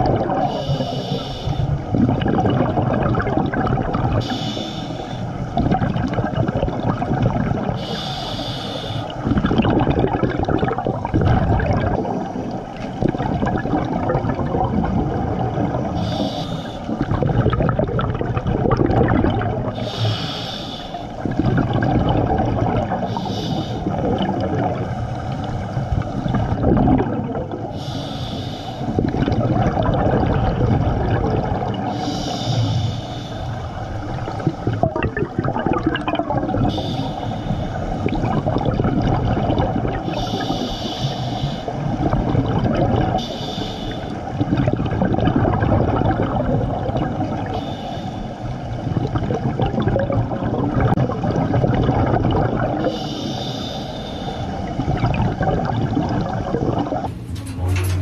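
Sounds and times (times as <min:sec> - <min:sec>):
exhaust bubbles gurgling: 0:00.0 - 0:58.0
regulator hissing inhale: 0:00.5 - 0:01.8, 0:04.2 - 0:05.4, 0:07.8 - 0:09.2, 0:16.0 - 0:17.0, 0:19.8 - 0:21.2, 0:23.0 - 0:24.0, 0:27.7 - 0:29.0, 0:31.9 - 0:33.8, 0:36.7 - 0:38.0, 0:40.1 - 0:41.8, 0:43.2 - 0:44.3, 0:47.4 - 0:48.8, 0:52.8 - 0:54.8.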